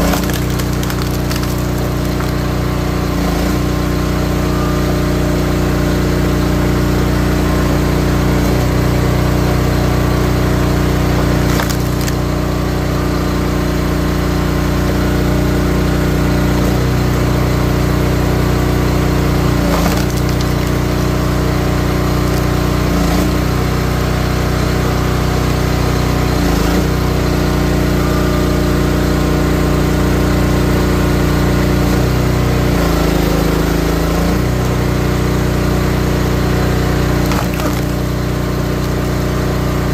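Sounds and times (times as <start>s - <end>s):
wood cracking and splintering: 0.0s - 3.6s, 10.6s - 12.6s, 19.2s - 23.4s, 32.2s - 39.9s
log splitter engine running: 0.0s - 39.9s.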